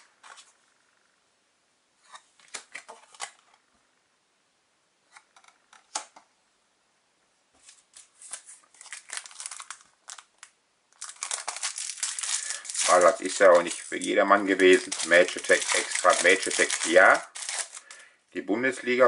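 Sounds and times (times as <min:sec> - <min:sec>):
foil wrapper crinkling: 0:08.0 - 0:18.0
trading cards flicking and rustling: 0:11.0 - 0:18.0.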